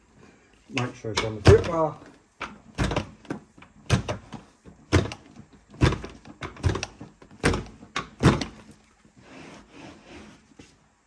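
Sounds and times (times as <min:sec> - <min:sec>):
carpet stretcher dull thumps: 0:02.4 - 0:08.7.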